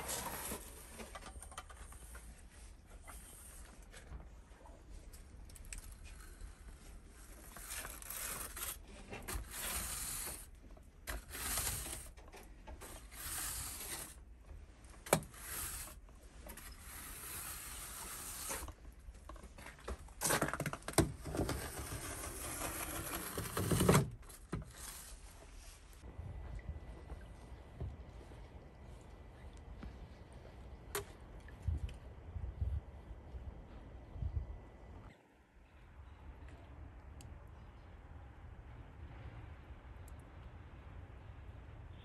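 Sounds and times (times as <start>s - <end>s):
brush sweeping snow: 13.0s - 14.2s, 16.8s - 18.7s.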